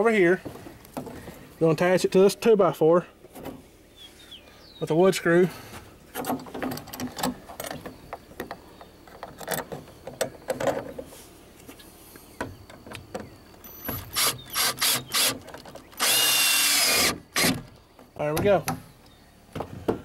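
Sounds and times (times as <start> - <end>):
power drill driving screw: 13.7 - 15.4, 16.0 - 17.6.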